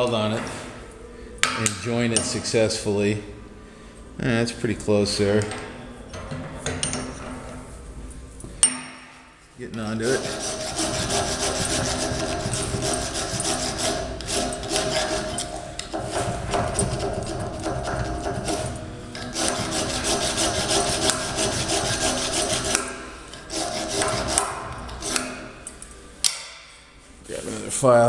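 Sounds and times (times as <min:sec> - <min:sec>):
file rasping on metal: 0:10.0 - 0:25.4.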